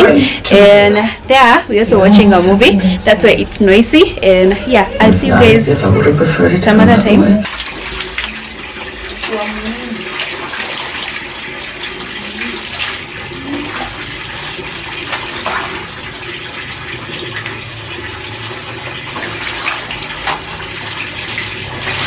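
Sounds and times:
tap running into bucket: 7.4s - 22.0s
water sloshing and splashing: 7.4s - 22.0s.

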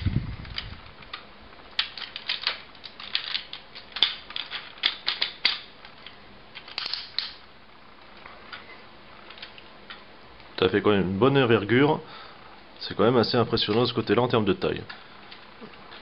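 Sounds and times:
plastic rattle: 0.4s - 7.4s
plastic toy parts clicking: 0.6s - 6.0s, 6.6s - 7.4s.

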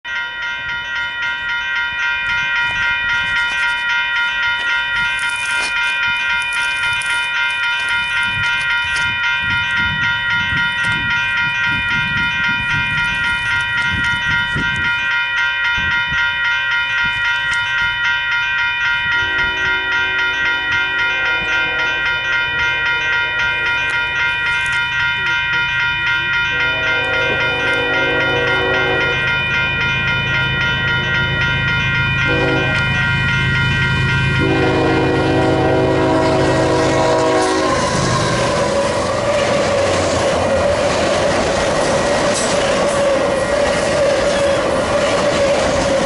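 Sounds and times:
railroad crossing bell ringing: 0.0s - 46.0s
faint train horn blasts: 19.2s - 22.2s, 26.5s - 29.3s, 32.2s - 33.1s, 34.4s - 38.6s.

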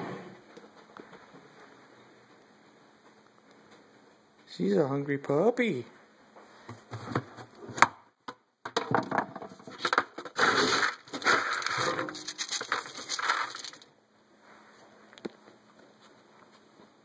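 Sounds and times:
kibble poured into a bowl: 10.4s - 13.9s.

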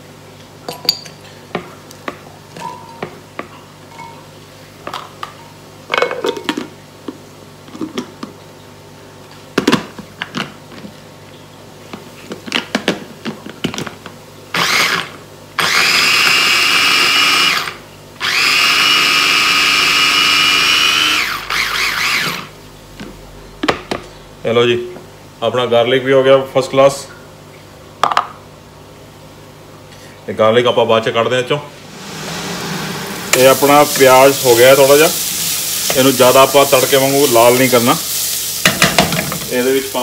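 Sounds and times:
mini chopper motor whining: 14.6s - 22.5s.

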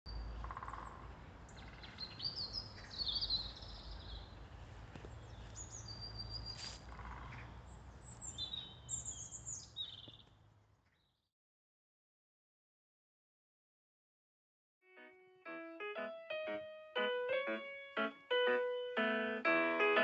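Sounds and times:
small birds chirping: 0.1s - 11.2s.

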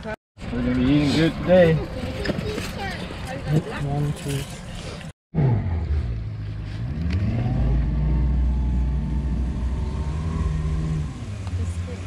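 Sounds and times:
boat motor running: 7.5s - 12.0s.

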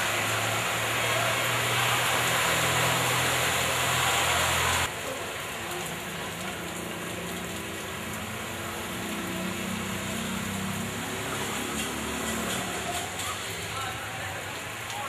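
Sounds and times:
car engines hum: 0.0s - 13.9s
rain hiss: 0.0s - 15.0s.

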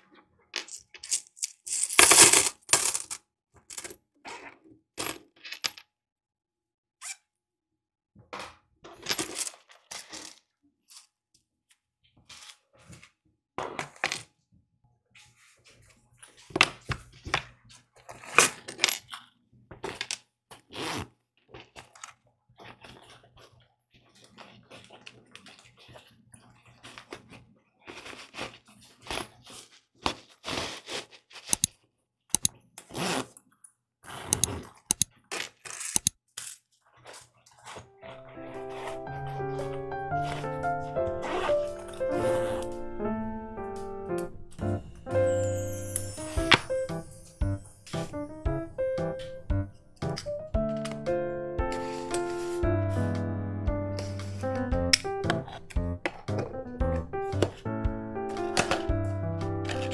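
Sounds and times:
rustling and scraping of pouches: 8.9s - 11.2s, 15.2s - 31.7s, 34.0s - 42.7s, 51.7s - 53.1s, 54.0s - 56.4s
zipper pulls clinking: 32.9s - 33.3s, 41.2s - 42.8s.

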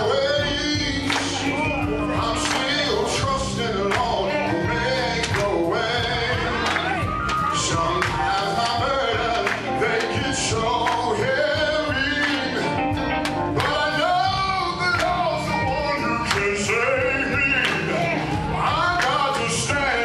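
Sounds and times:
band accompaniment: 0.0s - 20.0s
man singing gospel into microphone: 0.0s - 20.0s.

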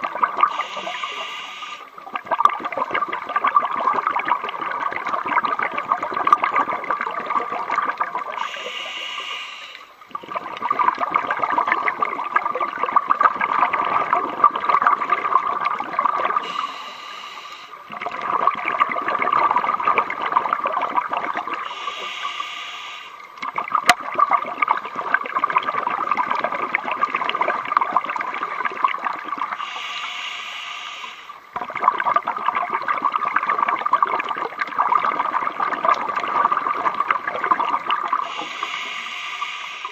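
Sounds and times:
exhaled bubbles rushing: 0.0s - 9.3s, 9.9s - 16.9s, 17.8s - 22.1s, 23.1s - 29.9s, 31.2s - 39.9s
diver inhaling through regulator: 0.5s - 1.9s, 8.4s - 10.0s, 16.4s - 17.8s, 21.6s - 23.3s, 29.6s - 31.4s, 38.2s - 39.9s.

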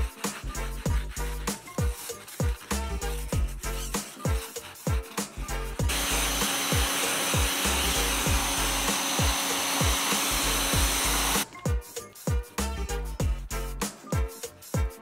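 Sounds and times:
background music with steady beat: 0.0s - 15.0s
motor hum: 5.9s - 11.4s
pressure washer jet hissing: 5.9s - 11.4s.

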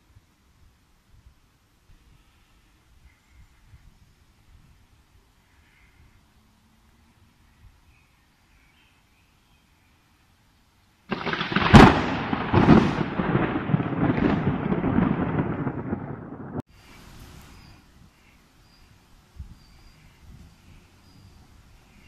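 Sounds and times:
thunder cracking and rumbling: 11.1s - 16.6s.

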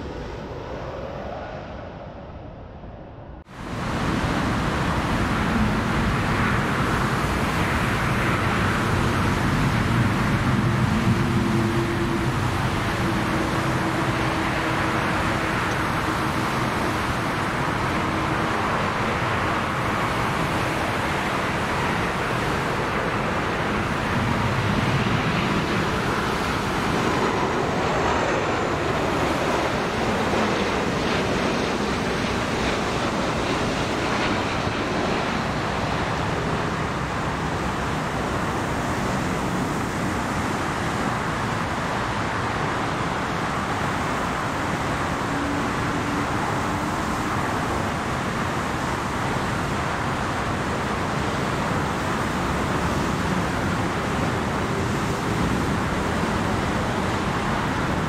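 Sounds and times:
jet engines roaring: 0.0s - 58.0s.

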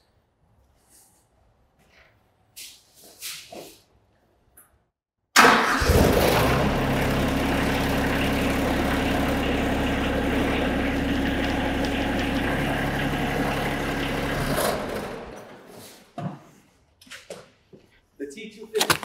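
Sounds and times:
diesel tractor engine idling: 5.4s - 15.6s.

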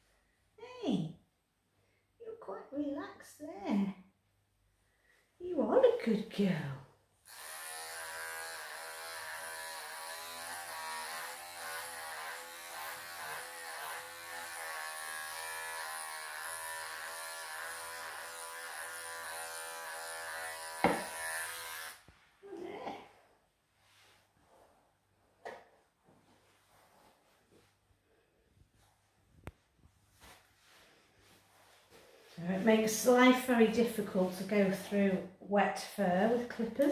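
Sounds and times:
electric clippers running: 7.3s - 22.0s.

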